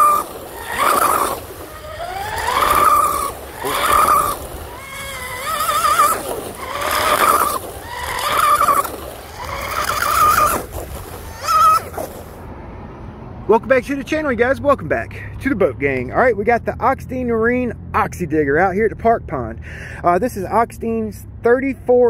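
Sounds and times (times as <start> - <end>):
electric motor whining: 0.0 - 12.3.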